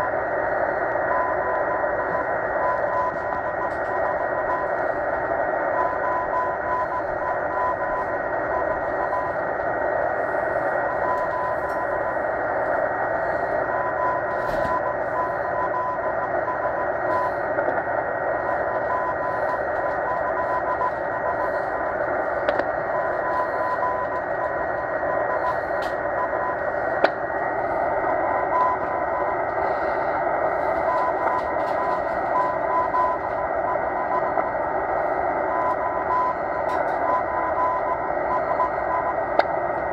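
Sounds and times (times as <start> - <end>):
morse code tone: 0.0 - 39.9
static crackles: 0.0 - 39.9.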